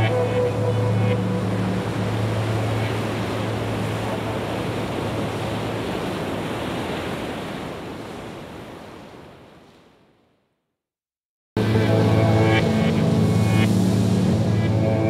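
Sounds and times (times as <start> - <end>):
ocean surf breaking: 0.0 - 10.1.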